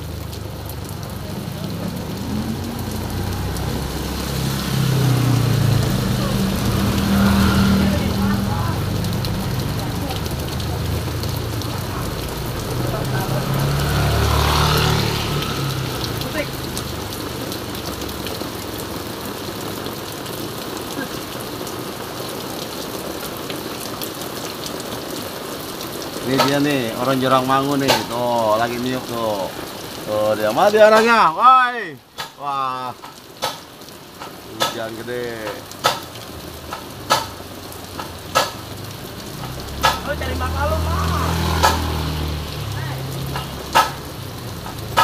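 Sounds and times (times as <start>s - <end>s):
heavy rain hissing: 0.0s - 45.0s
motorbike engine approaching: 1.1s - 17.5s, 39.2s - 45.0s.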